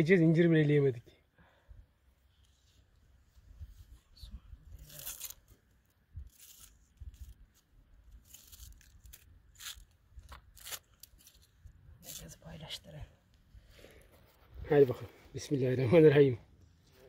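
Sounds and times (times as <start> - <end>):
food crunching and tearing: 4.9 - 5.5, 6.2 - 11.5.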